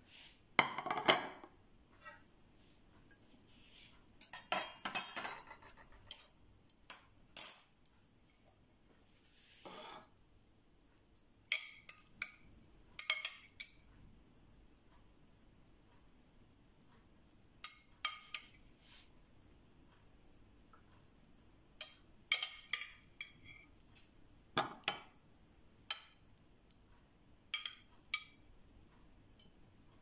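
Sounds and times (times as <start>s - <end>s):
metal spoon clinking on glass bowl: 4.2s - 6.3s, 21.8s - 23.6s, 27.5s - 28.4s.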